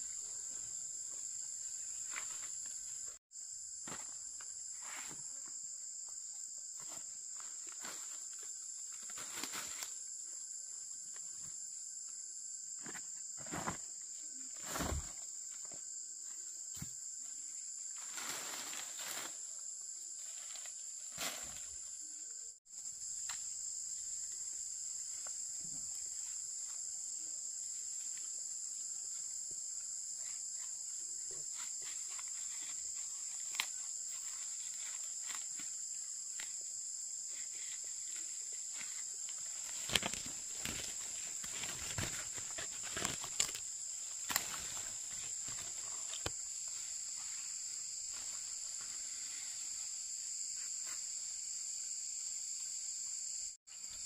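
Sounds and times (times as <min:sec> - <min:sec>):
high-pitched insect chorus: 0:00.0 - 0:54.0
rustles: 0:06.7 - 0:10.4, 0:12.8 - 0:22.4, 0:23.1 - 0:51.4.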